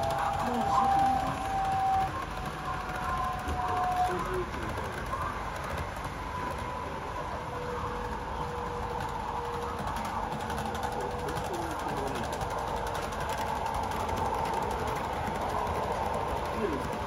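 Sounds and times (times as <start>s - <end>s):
model train wheels on rail: 0.0s - 17.0s
thin motor whine: 0.0s - 17.0s.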